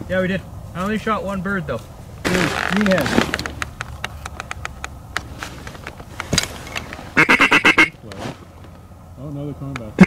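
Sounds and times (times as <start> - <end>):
sharp clicks: 2.6 - 6.9
duck quacks: 7.2 - 8.0.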